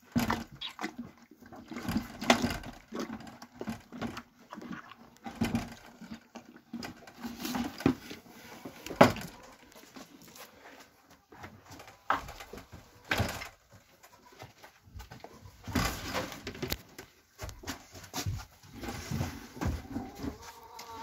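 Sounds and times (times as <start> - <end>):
calves knocking plastic buckets: 0.0 - 9.5.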